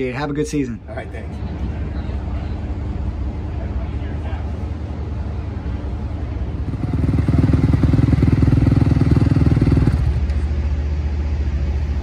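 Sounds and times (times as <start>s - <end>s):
dirt bike engine revving: 6.6s - 10.2s.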